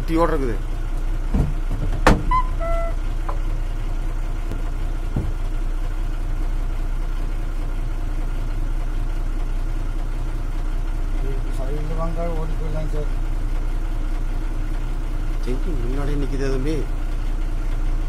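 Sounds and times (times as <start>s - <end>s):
truck engine idling: 0.0s - 18.0s
sharp knock: 1.3s - 2.3s, 5.1s - 5.4s
brief high tone: 2.3s - 3.0s.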